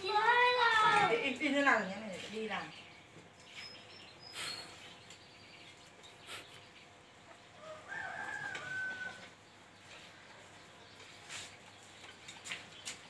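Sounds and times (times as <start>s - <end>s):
rooster crowing: 7.6s - 9.4s.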